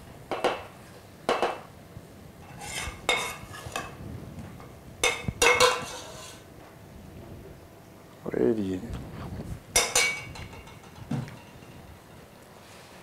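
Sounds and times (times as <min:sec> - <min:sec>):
metal ladle scraping a pot: 0:02.4 - 0:03.9, 0:05.6 - 0:06.4.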